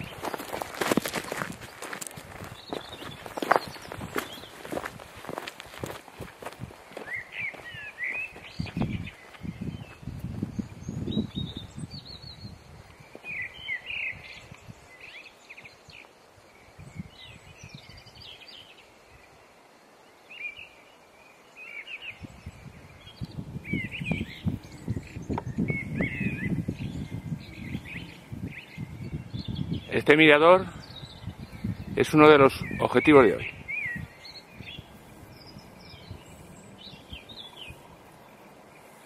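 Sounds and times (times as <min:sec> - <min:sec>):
footsteps crunching on stony trail: 0:00.0 - 0:11.8, 0:12.8 - 0:13.7
small birds chirping: 0:00.0 - 0:39.0.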